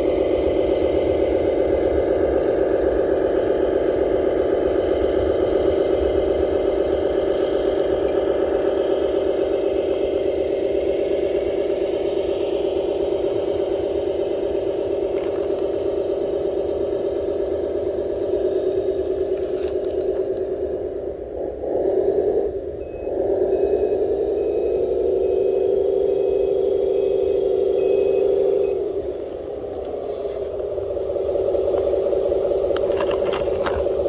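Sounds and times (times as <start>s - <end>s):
model truck engine drone: 0.0s - 34.0s.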